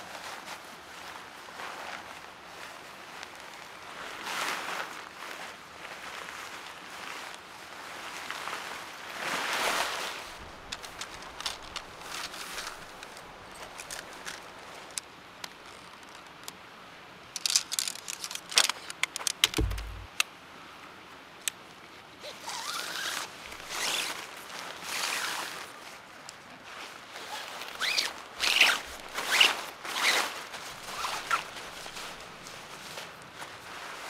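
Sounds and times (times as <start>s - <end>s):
tent poles clicking together: 10.4s - 16.6s, 17.3s - 20.3s, 22.5s - 24.2s, 27.2s - 33.4s
dull knock: 19.5s - 20.1s.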